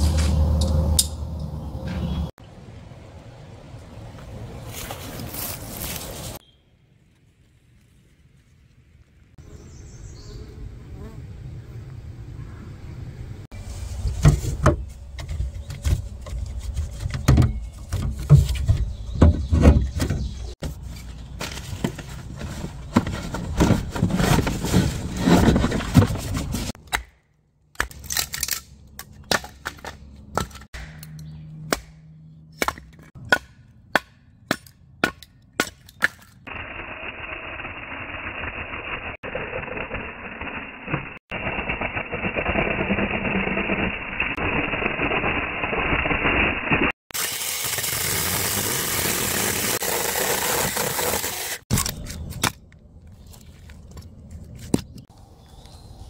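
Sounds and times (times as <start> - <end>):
mini chainsaw cutting wood: 47.1 - 51.6.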